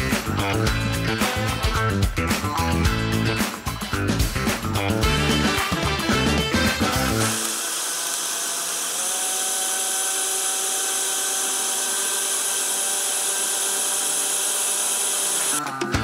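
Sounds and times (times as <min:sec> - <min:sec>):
blender motor whining: 0:06.4 - 0:15.6.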